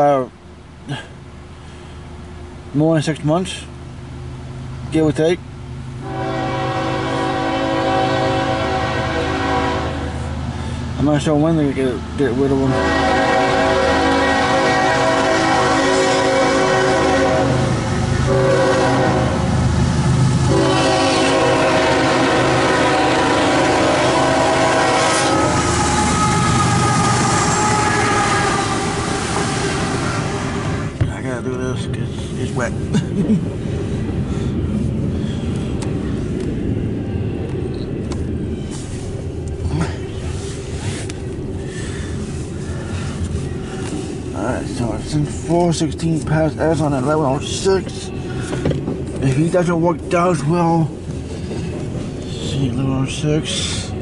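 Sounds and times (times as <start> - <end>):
train rumble: 0.0 - 54.0
locomotive air horn: 6.0 - 10.7, 12.5 - 19.6, 20.4 - 31.0.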